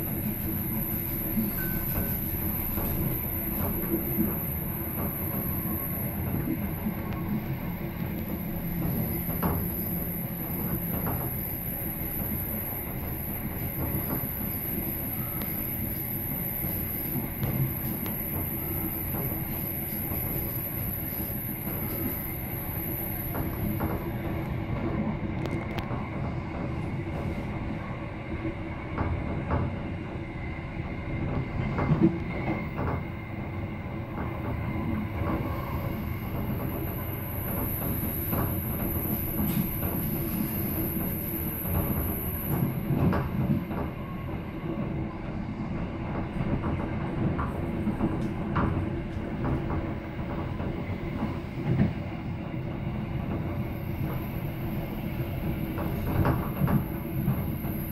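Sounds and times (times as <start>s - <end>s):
train wheels rumbling on rails: 0.0s - 57.9s.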